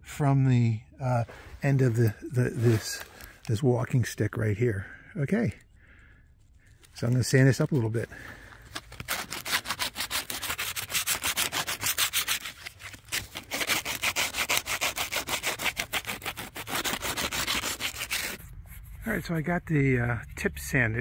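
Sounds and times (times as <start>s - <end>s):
sandpaper rasping on wood: 9.0s - 19.4s.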